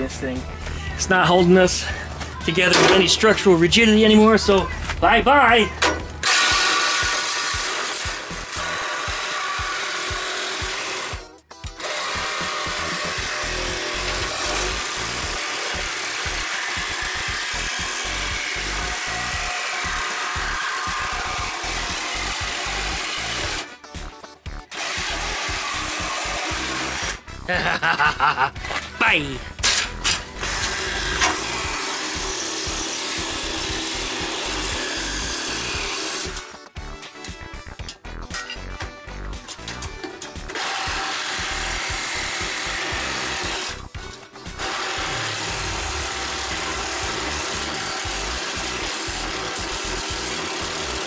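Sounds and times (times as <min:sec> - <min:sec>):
background music: 0:00.0 - 0:51.0
reciprocating saw cutting steel: 0:06.2 - 0:23.7, 0:24.7 - 0:27.3, 0:29.6 - 0:36.5, 0:40.5 - 0:43.9, 0:44.6 - 0:51.0.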